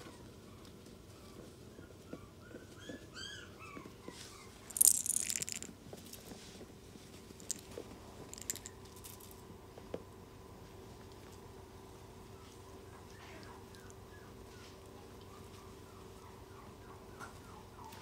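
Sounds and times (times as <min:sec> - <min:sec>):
puppy squeaking: 0:02.8 - 0:05.6
small clicks and taps: 0:07.4 - 0:07.6, 0:08.3 - 0:09.3.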